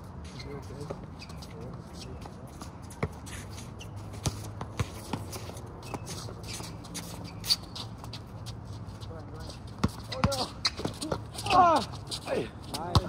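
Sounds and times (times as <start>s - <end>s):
basketball bouncing: 9.8s - 11.2s.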